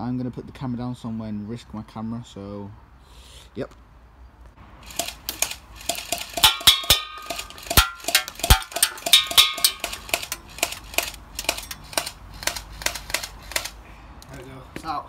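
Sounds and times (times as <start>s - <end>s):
metallic ping: 6.4s - 10.0s.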